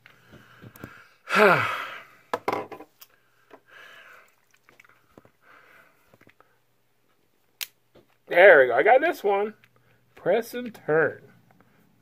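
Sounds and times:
soft breaths: 0.0s - 2.3s, 3.1s - 7.2s, 9.6s - 10.2s, 11.2s - 12.0s
man sighing: 1.2s - 2.2s.

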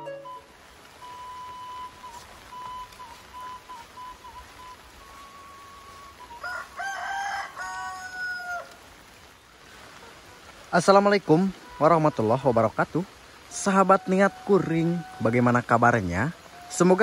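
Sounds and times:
light rain hiss: 0.0s - 17.0s
rooster crowing: 6.2s - 8.8s.

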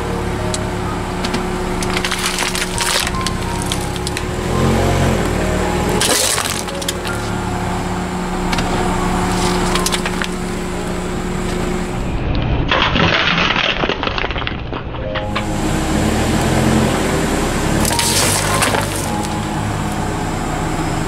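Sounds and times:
background music: 0.0s - 11.8s, 15.0s - 21.0s
can crunching under car tire: 1.8s - 4.3s, 6.0s - 7.2s, 17.8s - 19.4s.

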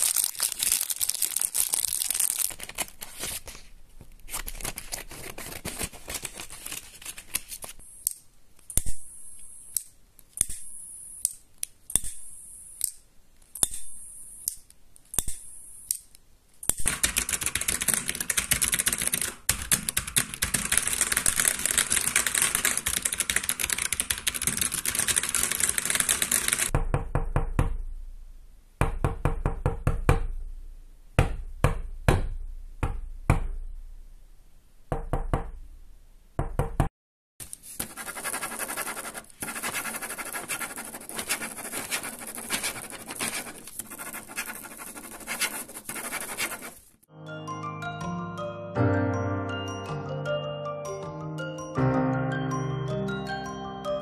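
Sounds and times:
paper crinkling and rustling: 0.0s - 7.8s
fast typing on a keyboard: 16.8s - 26.7s, 37.8s - 46.8s.

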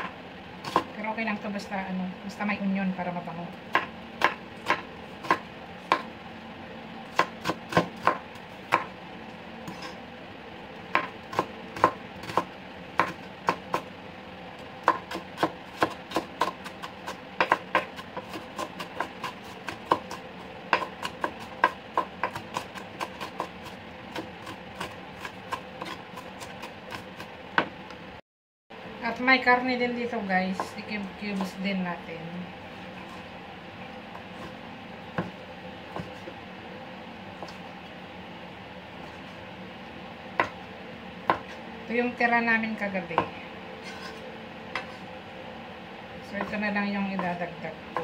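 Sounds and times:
knife chopping on cutting board: 3.7s - 6.1s, 7.1s - 8.9s, 10.9s - 13.9s, 14.8s - 27.7s, 35.2s - 36.4s, 40.4s - 40.6s, 41.2s - 41.6s, 43.2s - 45.0s.

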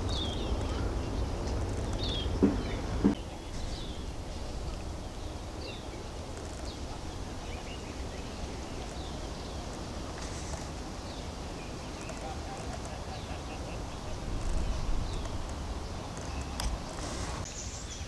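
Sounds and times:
low thumps: 0.0s - 5.6s
small birds chirping: 0.0s - 18.0s.

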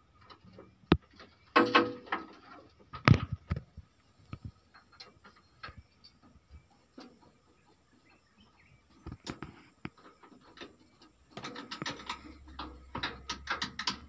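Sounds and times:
hand tools clicking on metal: 11.4s - 14.0s.

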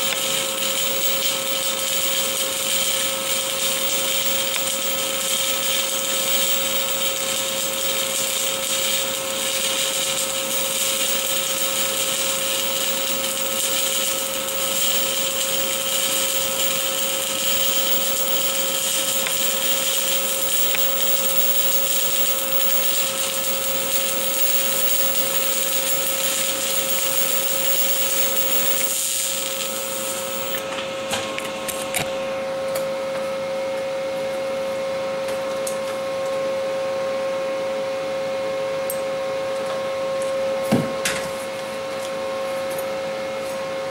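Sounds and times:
welding arc crackling and hissing: 0.0s - 30.6s.

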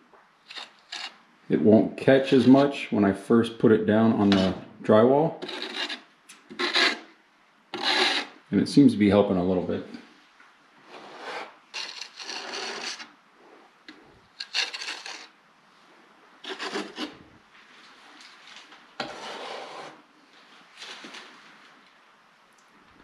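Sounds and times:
metal knife scraping wet compound: 0.4s - 1.2s, 4.2s - 4.6s, 5.4s - 7.1s, 7.8s - 8.4s, 10.9s - 13.2s, 14.3s - 15.4s, 16.4s - 17.2s.

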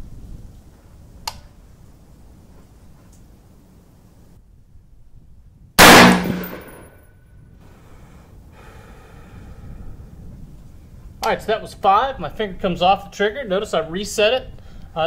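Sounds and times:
rifle shot: 5.8s - 7.0s.

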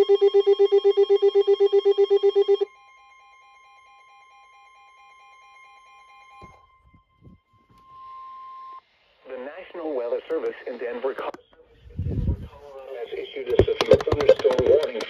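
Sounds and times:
rapidly pulsing electronic alarm: 0.0s - 8.8s
faint steady tone: 0.0s - 9.2s.

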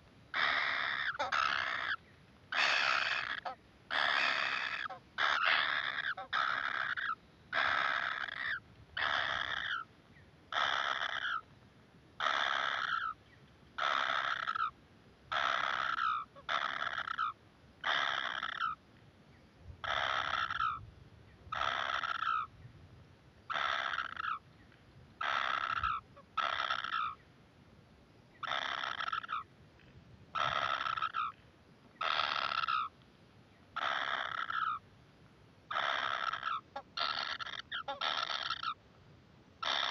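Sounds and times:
nestlings calling: 33.8s - 34.8s.

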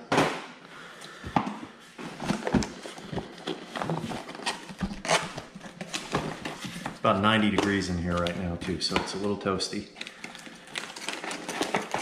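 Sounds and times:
cardboard boxes being handled: 1.7s - 8.4s.

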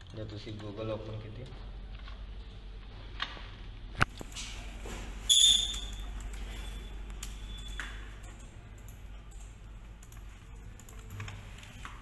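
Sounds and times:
steady low hum: 0.0s - 12.0s
high electronic ping: 5.3s - 6.0s.

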